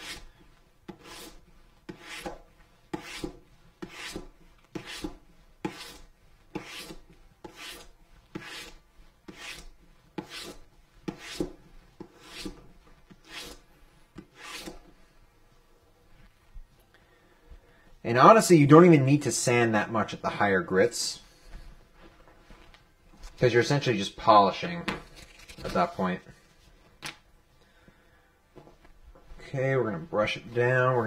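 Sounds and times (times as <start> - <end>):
sandpaper rubbing on leather: 2.9 - 11.4.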